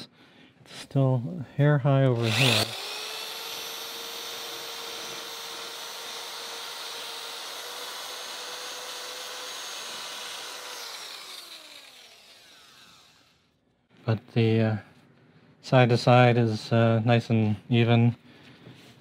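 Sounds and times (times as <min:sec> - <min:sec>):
drill whining: 0:02.1 - 0:13.6.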